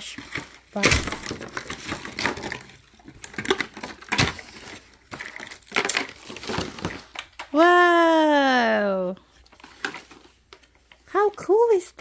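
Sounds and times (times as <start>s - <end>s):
plastic toy packaging rustling: 0.0s - 7.7s, 8.8s - 12.0s.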